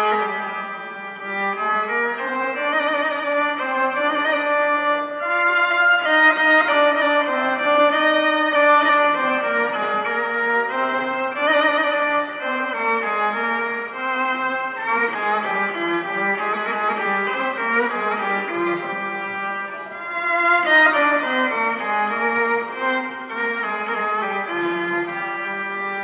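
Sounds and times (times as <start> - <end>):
solo violin melody: 0.0 - 26.0.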